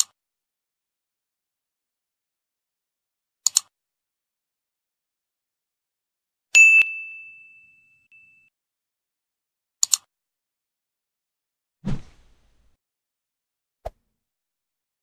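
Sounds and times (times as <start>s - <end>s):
mouse double click: 3.4s - 3.7s, 9.8s - 10.1s
notification bell ding: 6.6s - 8.5s.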